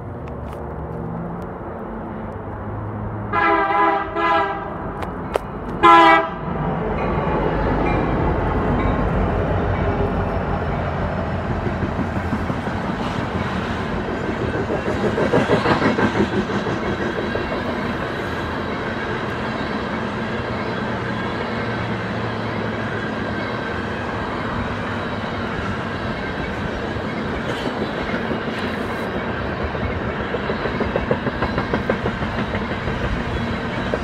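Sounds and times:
diesel locomotives rumbling past: 0:00.0 - 0:34.0
locomotive air horn blasts: 0:03.3 - 0:04.8, 0:05.8 - 0:06.4
train wheel clatter: 0:09.8 - 0:24.0, 0:24.7 - 0:34.0.

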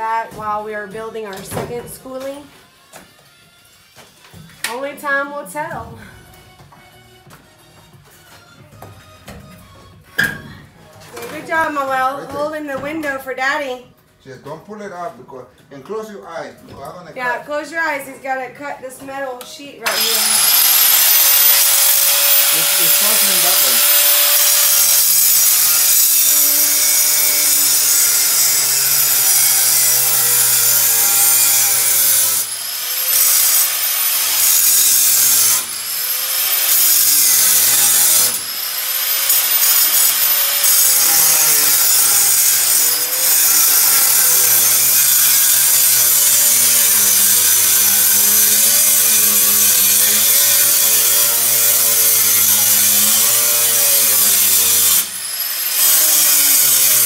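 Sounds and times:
angle grinder cutting sheet metal: 0:19.8 - 0:57.0.

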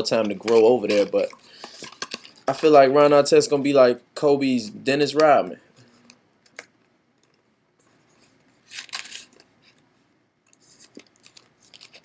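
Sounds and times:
faint irregular clicks and crackles: 0:00.2 - 0:02.5, 0:05.2 - 0:12.0.

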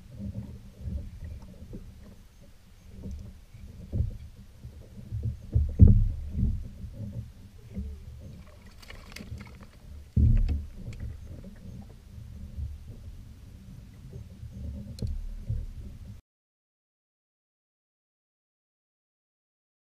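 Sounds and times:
water slapping against hull: 0:02.9 - 0:13.2
fish splashing: 0:08.4 - 0:09.8.

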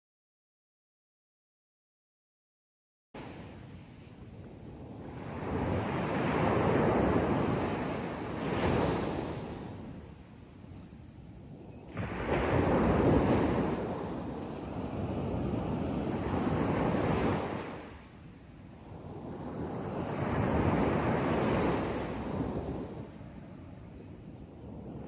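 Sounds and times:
sea waves breaking on sand: 0:04.4 - 0:10.2, 0:11.9 - 0:18.1, 0:18.7 - 0:23.8.

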